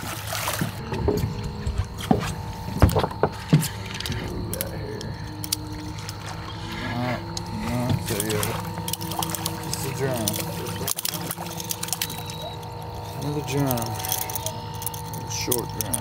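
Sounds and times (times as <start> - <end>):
fish splashing into water: 0.0 - 0.8
steady hum: 0.0 - 16.0
gear knocking and clicking: 7.3 - 16.0.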